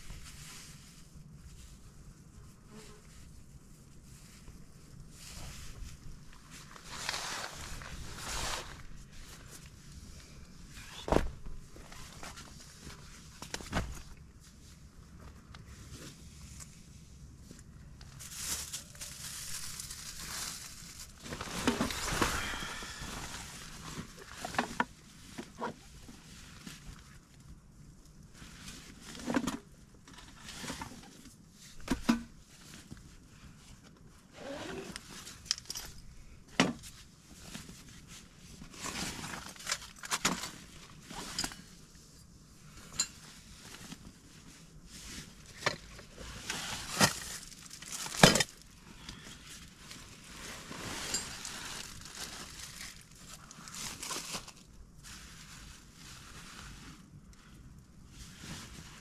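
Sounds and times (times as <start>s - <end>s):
rustling: 0.0s - 59.0s.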